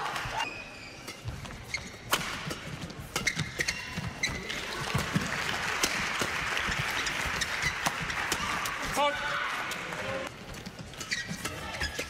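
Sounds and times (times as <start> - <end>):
shoes squeaking on court: 0.4 - 5.0, 6.6 - 8.7, 10.4 - 12.0
racket striking shuttlecock: 1.0 - 4.4, 5.8 - 8.9.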